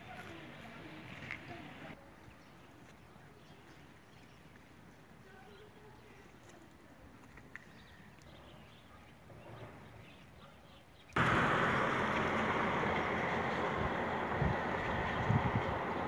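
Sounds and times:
faint outdoor background: 0.0s - 16.0s
loud steady rushing noise: 11.2s - 16.0s.

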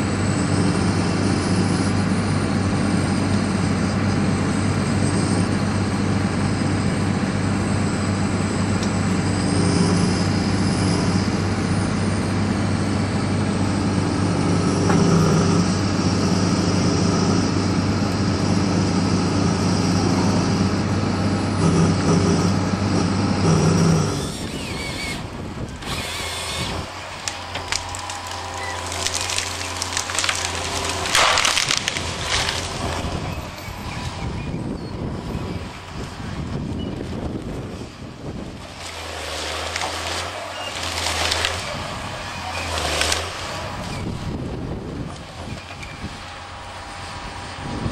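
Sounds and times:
forestry machine engine running: 0.0s - 47.9s
harvester felling a tree: 0.0s - 47.9s
hydraulic and crane sounds: 0.0s - 47.9s
tree trunk cracking: 24.3s - 33.4s, 38.4s - 44.1s.

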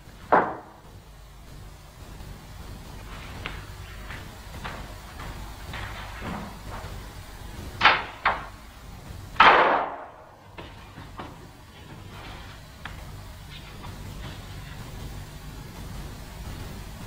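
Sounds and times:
sharp knocks: 0.3s - 0.8s.

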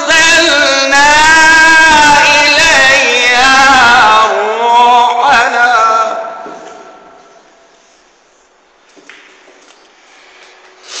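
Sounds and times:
man reciting melodically: 0.0s - 7.4s.

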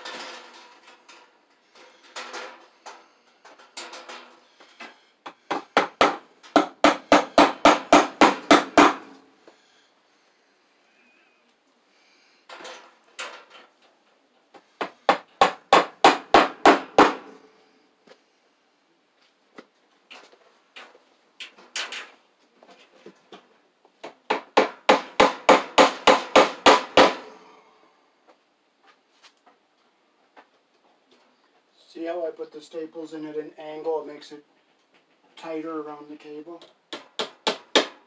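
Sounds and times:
hammer blows on staples: 4.8s - 9.1s, 14.8s - 17.3s, 24.0s - 27.3s, 36.9s - 38.0s.

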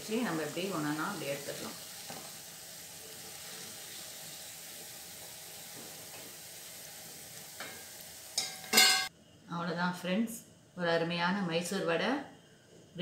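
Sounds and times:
deep-frying sizzle in oil: 0.0s - 9.1s.

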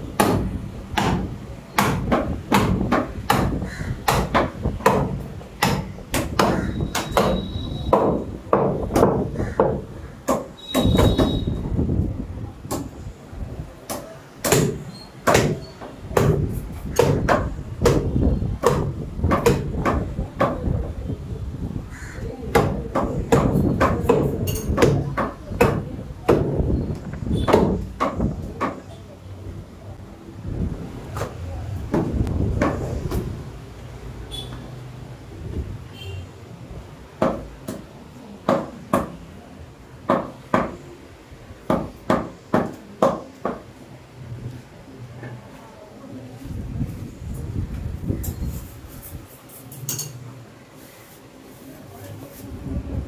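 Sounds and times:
cleaver chopping ribs on wood: 0.2s - 11.0s, 14.4s - 15.6s, 16.2s - 20.6s, 22.6s - 26.6s, 27.5s - 28.8s.

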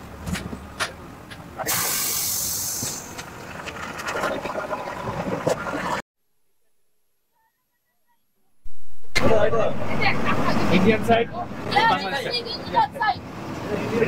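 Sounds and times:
road vehicle travel noise: 0.0s - 4.3s, 9.1s - 14.0s
sudden loud hiss: 1.6s - 3.1s.

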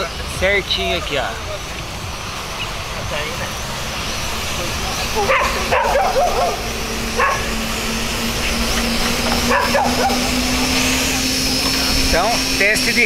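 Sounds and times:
drone propellers humming: 0.0s - 13.0s
short barking calls: 5.2s - 7.6s.

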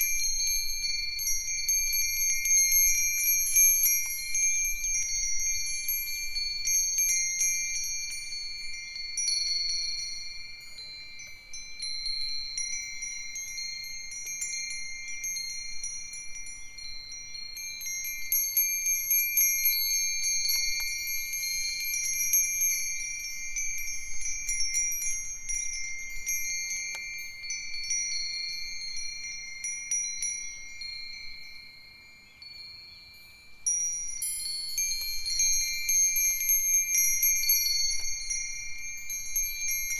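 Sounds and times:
wind chimes ringing: 0.0s - 39.9s.

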